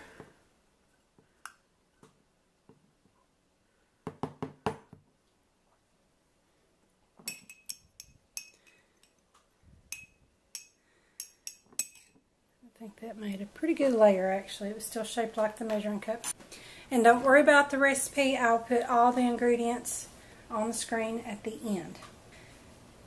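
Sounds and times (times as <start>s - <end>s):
metal cup tapping glass jar rim: 7.3s - 9.2s, 9.9s - 12.2s
spoon clinking inside glass jar: 7.3s - 9.2s, 9.9s - 12.2s.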